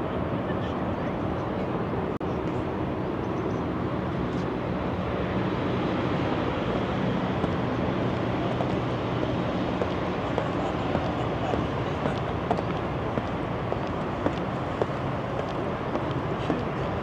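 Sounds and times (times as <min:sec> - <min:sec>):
expressway traffic noise: 0:00.0 - 0:17.0.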